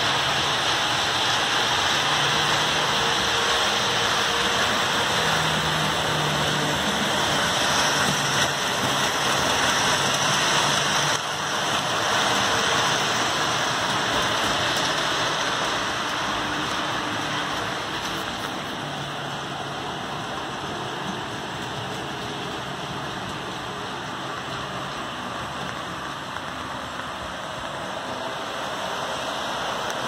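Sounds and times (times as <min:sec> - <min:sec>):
model train wheels rolling on track: 0:00.0 - 0:30.0.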